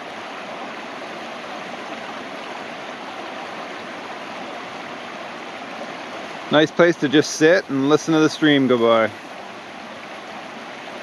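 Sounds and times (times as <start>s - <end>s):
brook rushing over rocks: 1.4s - 11.0s.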